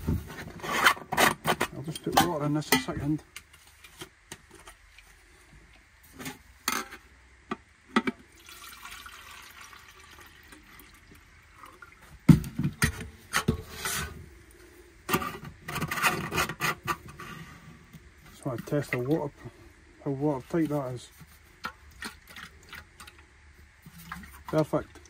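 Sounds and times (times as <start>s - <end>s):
water pouring into metal canteen: 8.2s - 12.3s, 21.6s - 25.0s.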